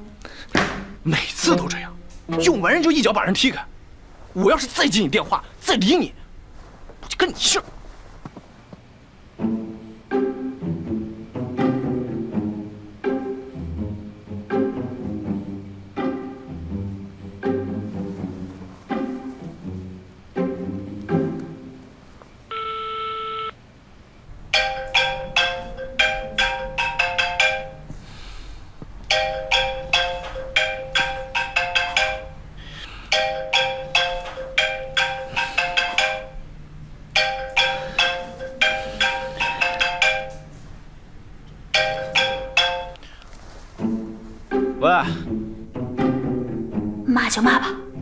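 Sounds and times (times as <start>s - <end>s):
smartphone ringtone melody: 22.5s - 23.6s
steady beep: 22.5s - 23.6s.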